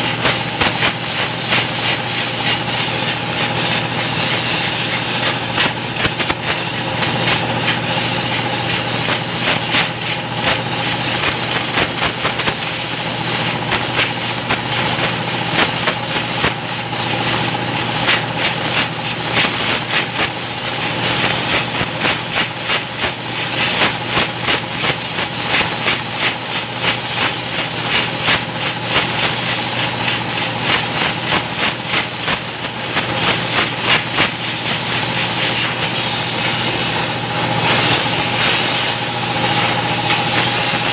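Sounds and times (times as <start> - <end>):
compressed air hissing: 0.0 - 40.9
mechanical hum: 0.0 - 40.9.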